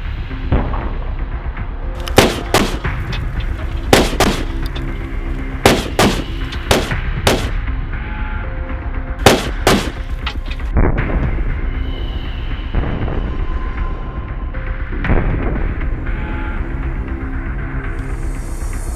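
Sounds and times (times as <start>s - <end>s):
background music: 0.0s - 18.9s
rifle shots: 2.0s - 3.1s, 3.9s - 4.8s, 5.6s - 7.6s, 9.2s - 10.4s.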